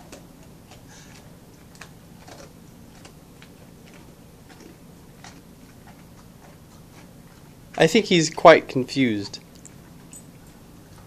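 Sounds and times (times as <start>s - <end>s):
dog crunching a biscuit: 0.0s - 8.5s.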